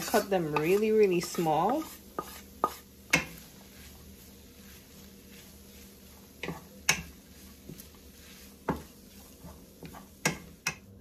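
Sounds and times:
spatula knocking on pan: 0.0s - 3.4s, 6.4s - 7.9s, 8.6s - 10.9s
spatula stirring food in pan: 0.0s - 11.0s.

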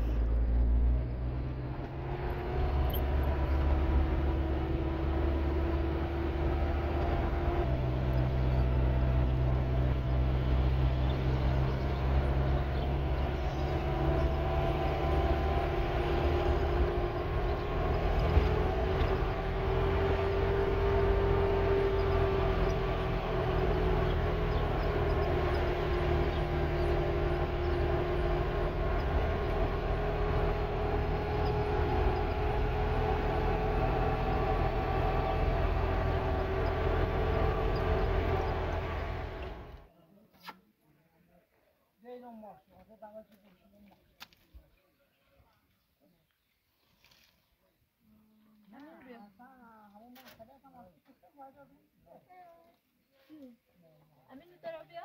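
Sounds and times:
truck engine drone with whine: 0.0s - 39.9s
low road rumble: 0.0s - 40.1s.

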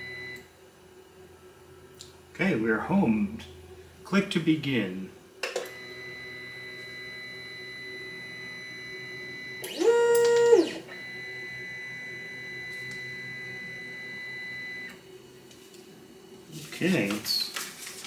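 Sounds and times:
printer high hum: 0.0s - 5.1s, 5.7s - 18.0s
stepper motors whining: 5.7s - 15.0s.

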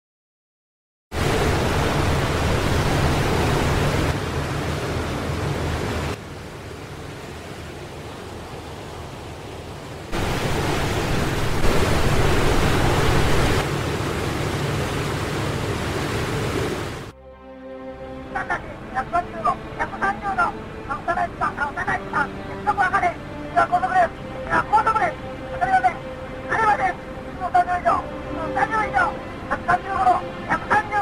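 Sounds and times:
rushing wind: 1.1s - 6.1s, 7.3s - 15.3s
sea noise: 1.1s - 17.2s, 17.8s - 31.0s.

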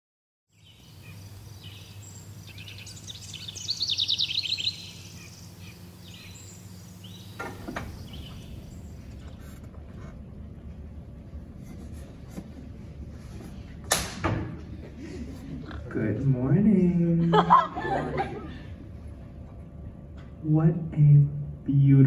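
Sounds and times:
bird chirping and trilling: 0.5s - 9.3s
steady low hum: 0.5s - 22.0s.

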